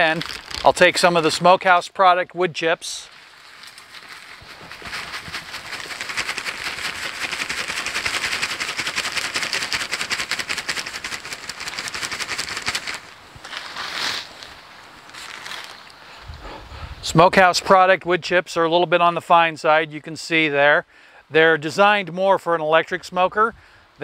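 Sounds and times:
wood chips pouring into skillet: 3.3s - 13.1s.

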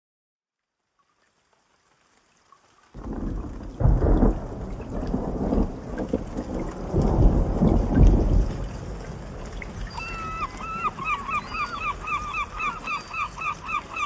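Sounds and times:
rain falling: 0.6s - 14.0s
rolling thunder: 3.0s - 10.4s.

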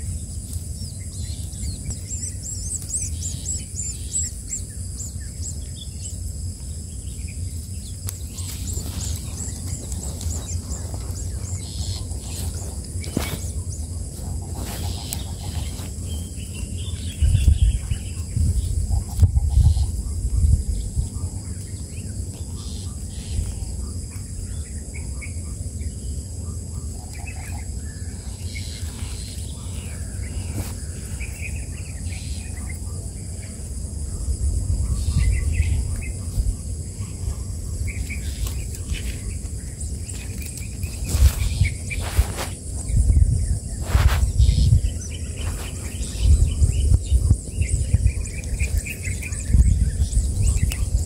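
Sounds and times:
high insect drone: 0.0s - 51.0s
fingers rustling twigs: 8.0s - 16.8s, 38.0s - 43.0s.

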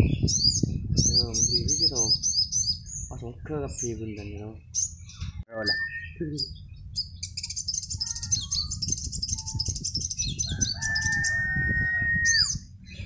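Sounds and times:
birds chattering song: 0.0s - 13.0s
rooster crowing: 10.4s - 12.5s.

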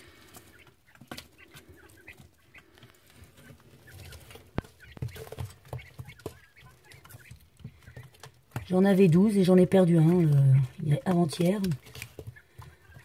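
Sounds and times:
quail chicks peeping: 0.0s - 13.0s.

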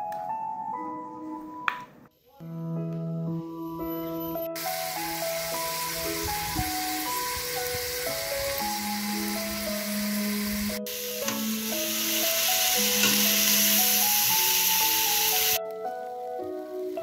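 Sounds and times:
background music: 0.0s - 17.0s
meat sizzling in a pot: 4.6s - 15.6s.

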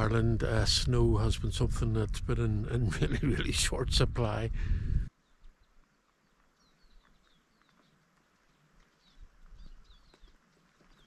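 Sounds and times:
low rumble with dull thumps: 0.0s - 5.1s
small birds chirping: 5.0s - 11.0s.

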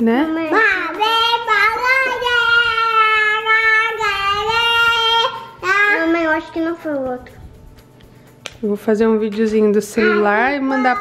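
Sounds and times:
child singing: 0.5s - 7.3s, 10.0s - 11.0s.

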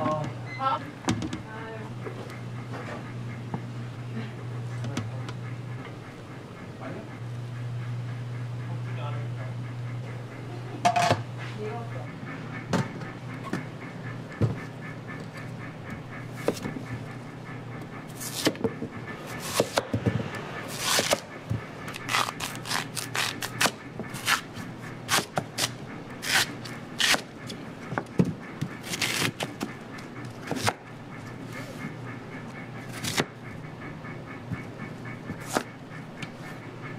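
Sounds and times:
background hum: 0.0s - 36.9s
knife cutting on a board: 16.4s - 16.8s, 18.1s - 18.7s, 19.3s - 21.3s, 25.1s - 27.3s, 30.2s - 30.8s, 32.9s - 33.3s, 35.3s - 35.7s.

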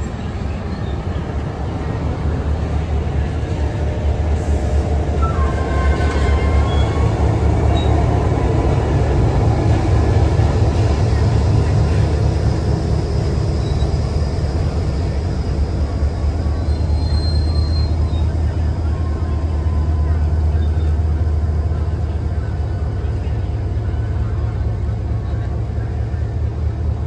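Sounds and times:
diesel locomotive rumble: 0.0s - 27.0s
wheels and brakes squealing: 0.4s - 1.3s, 4.8s - 8.2s, 13.1s - 15.3s, 16.4s - 21.0s.

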